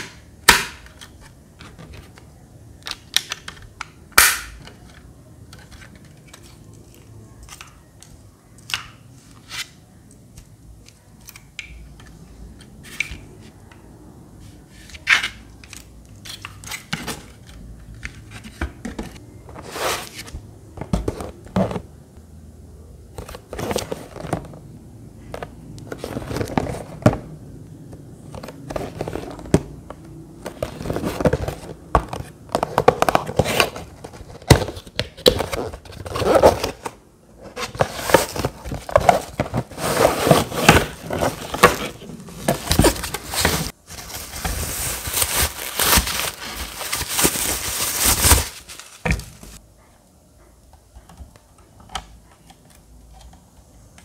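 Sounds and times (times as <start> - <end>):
cardboard and wrapping rustling: 23.2 - 24.7, 25.5 - 27.3, 28.2 - 49.6.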